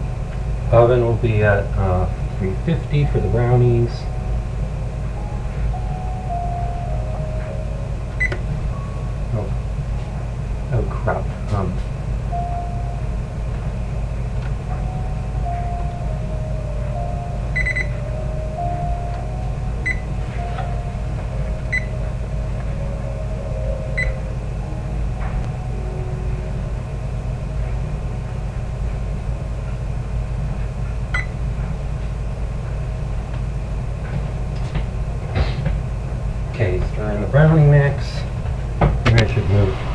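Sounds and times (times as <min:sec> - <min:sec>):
faint classical piano music: 0:00.0 - 0:39.9
steady low rumble: 0:00.0 - 0:39.9
short electronic beeps: 0:17.0 - 0:18.8.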